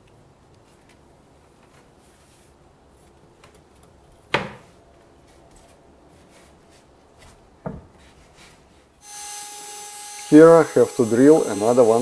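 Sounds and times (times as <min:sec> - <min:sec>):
knocks against wood: 0:04.3 - 0:04.7.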